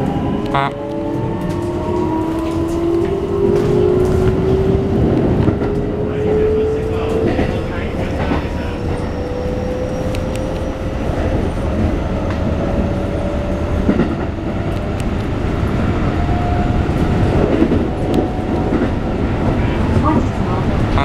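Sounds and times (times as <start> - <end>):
wheel and track rumble: 0.0 - 21.0
clacks over rail joints: 0.8 - 9.1, 13.5 - 15.4, 16.8 - 21.0.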